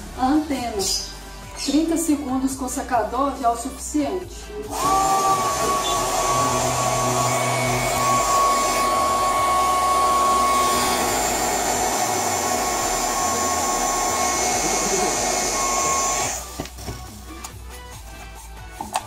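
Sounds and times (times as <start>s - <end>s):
hair dryer running: 4.6s - 16.8s.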